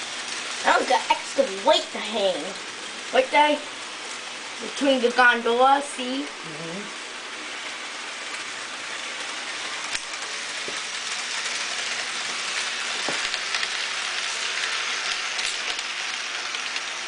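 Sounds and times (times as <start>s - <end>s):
model train rattling on track: 7.5s - 17.0s.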